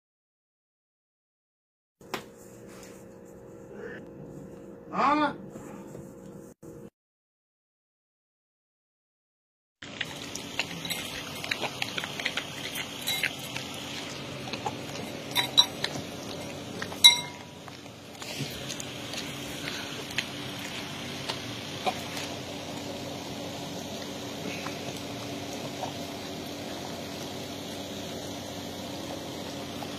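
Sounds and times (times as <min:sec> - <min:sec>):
dog eating wetly: 0:09.8 - 0:29.9
metal spoon clinking in bowl: 0:13.0 - 0:13.4, 0:15.3 - 0:15.8, 0:17.0 - 0:17.5.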